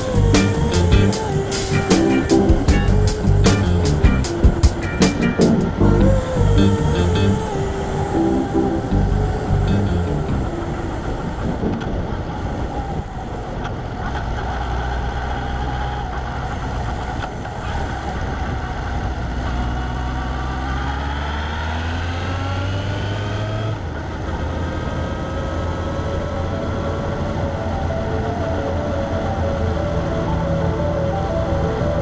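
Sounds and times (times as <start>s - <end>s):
road noise: 0.0s - 32.0s
vehicle engine accelerating: 0.0s - 32.0s.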